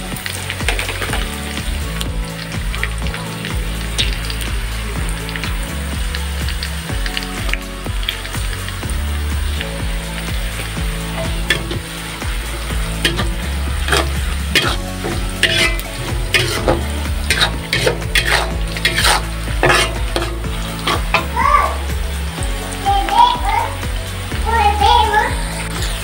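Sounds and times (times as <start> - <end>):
frying hiss in oil: 0.0 - 26.0
spatula scraping a wok: 11.1 - 21.4.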